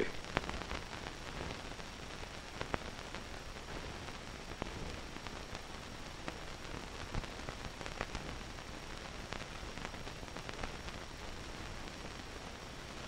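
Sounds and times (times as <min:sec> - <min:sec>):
crackles and pops: 0:00.0 - 0:13.0
film soundtrack hiss: 0:00.0 - 0:13.0.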